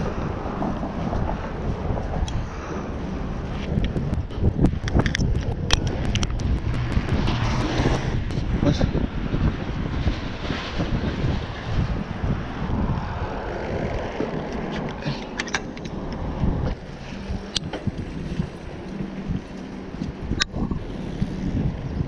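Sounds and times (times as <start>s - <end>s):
wind buffeting microphone: 0.0s - 22.0s
sharp clicks: 3.7s - 8.5s.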